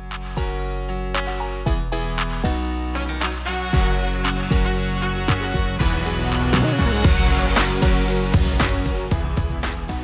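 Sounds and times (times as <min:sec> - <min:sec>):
background music with beat and bass: 0:00.0 - 0:10.0.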